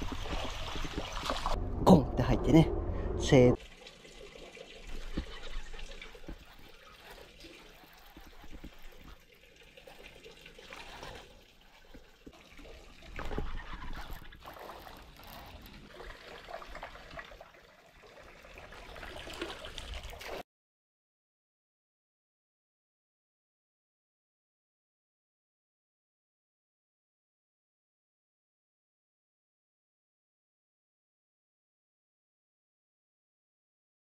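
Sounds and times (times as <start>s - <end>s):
water trickling in canal: 0.0s - 2.6s, 3.2s - 20.4s.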